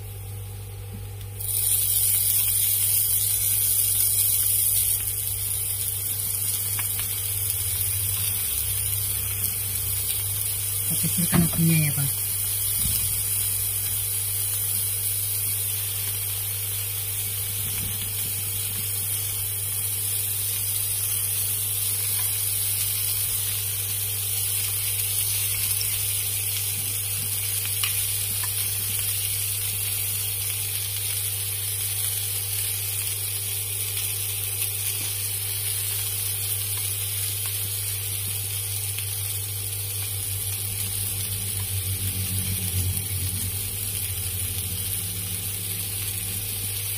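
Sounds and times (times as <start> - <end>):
clams sizzling on a pan: 0.0 - 46.9
steady low hum: 39.7 - 46.9.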